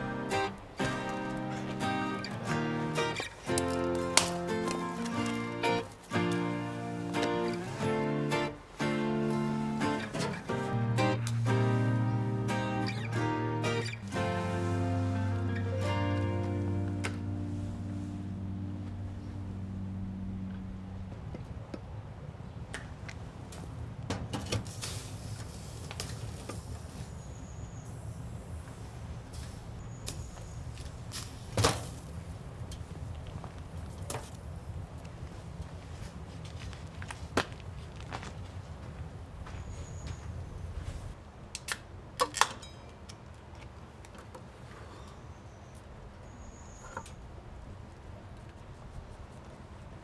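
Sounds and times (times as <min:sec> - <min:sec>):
low steady rumble: 0:14.3 - 0:22.1.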